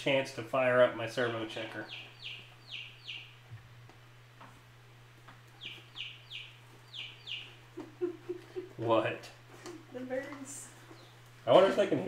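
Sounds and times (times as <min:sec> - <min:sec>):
baby chicks peeping: 0:01.4 - 0:03.8, 0:05.2 - 0:11.8.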